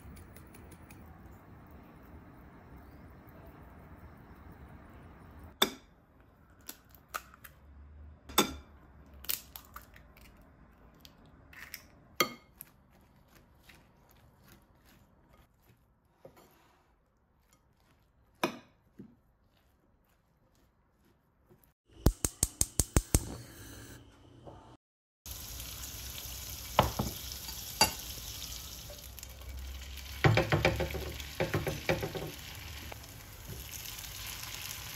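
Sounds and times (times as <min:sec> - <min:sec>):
fork stirring mixture: 0:12.2 - 0:21.7.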